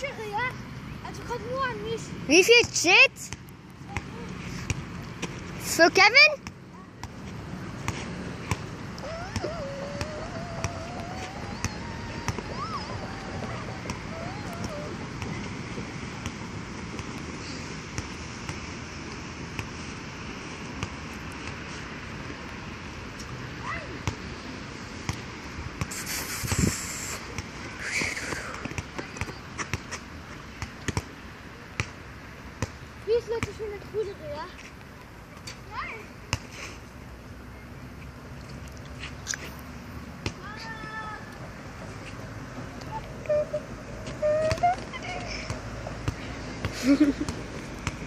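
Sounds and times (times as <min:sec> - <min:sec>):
basketball bouncing on court: 0:44.4 - 0:44.9
basketball bouncing: 0:44.4 - 0:48.0.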